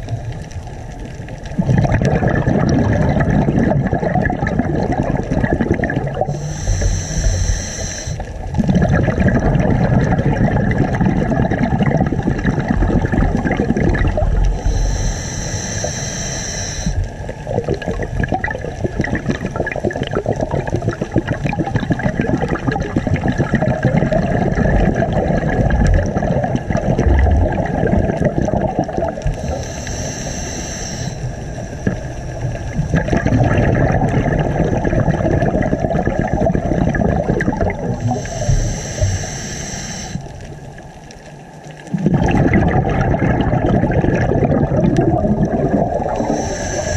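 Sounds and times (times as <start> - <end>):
exhaled bubbles underwater: 0.0 - 46.9
regulator inhalation hiss: 6.2 - 8.4, 14.4 - 17.2, 29.3 - 32.7, 38.0 - 40.6, 46.0 - 46.9.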